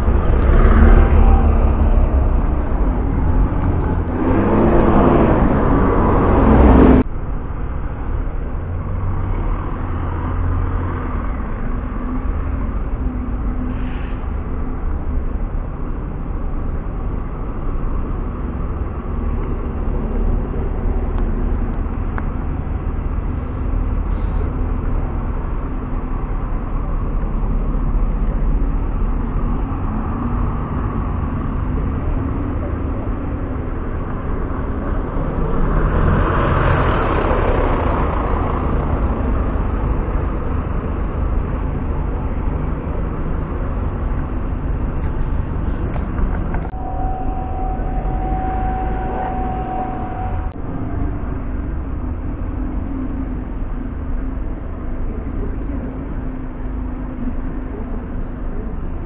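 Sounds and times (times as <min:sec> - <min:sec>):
vehicle passing close: 0:00.0 - 0:14.7, 0:28.9 - 0:53.9
bus engines rumbling: 0:00.0 - 0:59.0.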